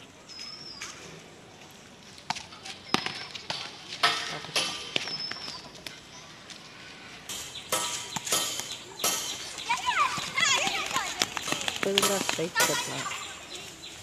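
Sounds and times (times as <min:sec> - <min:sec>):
sharp knocks and taps: 0:07.3 - 0:13.1
boys shouting: 0:09.6 - 0:13.5.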